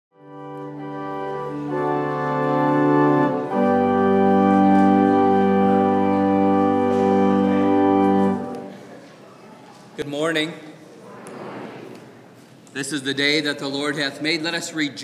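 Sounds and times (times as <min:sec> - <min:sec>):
organ chords: 0:00.1 - 0:08.9.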